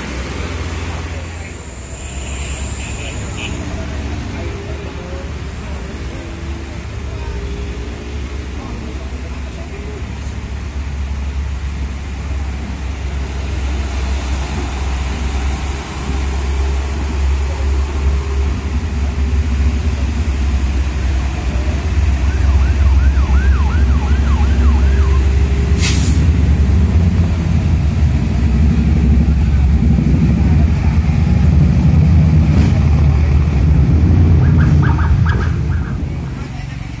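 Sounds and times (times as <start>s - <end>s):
diesel truck engine droning: 0.0s - 37.0s
short sharp hiss: 25.8s - 26.3s.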